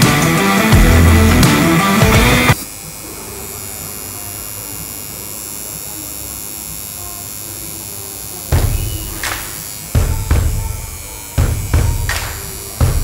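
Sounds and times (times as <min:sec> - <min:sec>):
music with heavy drum hits: 0:00.0 - 0:02.6, 0:08.5 - 0:13.0.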